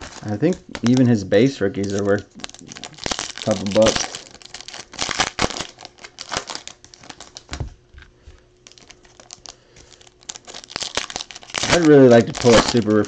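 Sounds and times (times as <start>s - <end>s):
cards being handled: 0.0s - 4.8s, 8.7s - 13.0s
foil wrapper crinkling: 0.0s - 7.6s, 8.6s - 13.0s.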